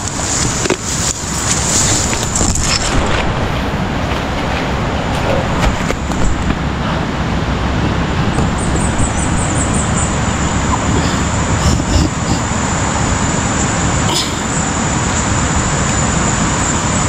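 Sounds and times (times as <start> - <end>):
grass brushing past: 0.0 - 6.6
wind on microphone: 0.0 - 17.0.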